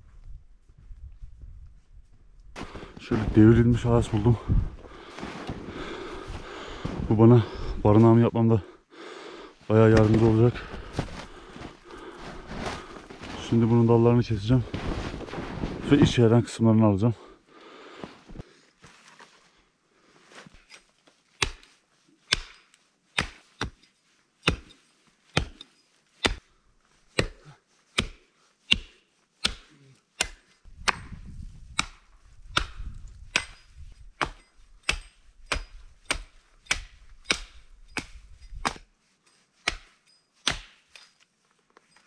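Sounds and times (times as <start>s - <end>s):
axe chopping branches: 21.4s - 21.7s, 22.3s - 23.8s, 24.4s - 25.6s, 27.1s - 33.6s, 34.2s - 38.8s, 39.6s - 41.0s.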